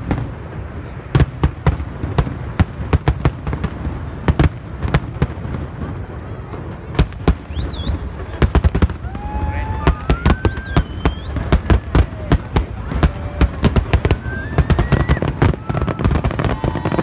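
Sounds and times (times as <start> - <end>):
distant fireworks bursting: 0.0 - 17.0.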